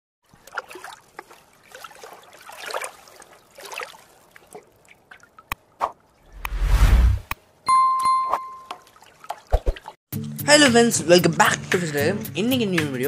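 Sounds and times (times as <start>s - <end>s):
deep whoosh: 6.3s - 7.3s.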